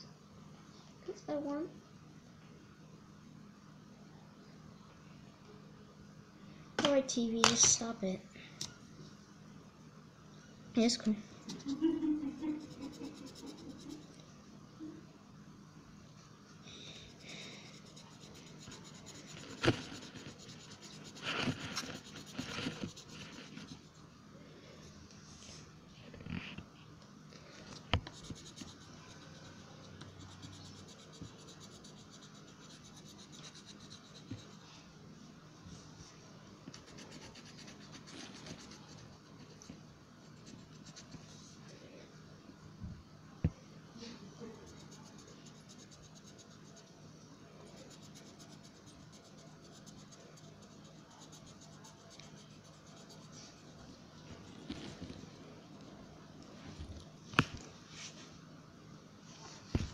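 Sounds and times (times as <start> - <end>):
steady low hum: 0.0 - 59.9
pencil scratching on paper: 12.6 - 14.2, 17.1 - 24.1, 28.1 - 34.6, 36.8 - 39.7, 40.3 - 41.3, 44.6 - 46.9, 47.6 - 55.0.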